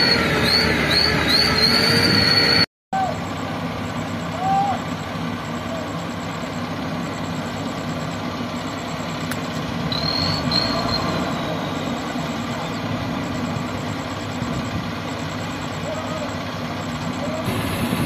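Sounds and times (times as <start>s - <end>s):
high-pitched squeal: 0.0s - 3.2s, 9.9s - 13.0s
heavy machine diesel engines: 0.0s - 18.0s.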